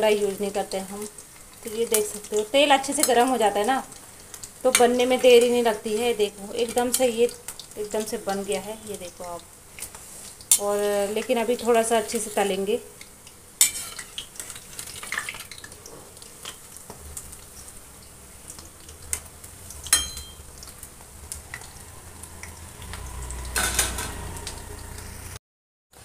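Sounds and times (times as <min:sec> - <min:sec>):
deep-frying sizzle: 0:00.0 - 0:25.4
spoon scraping metal pan: 0:13.6 - 0:14.6.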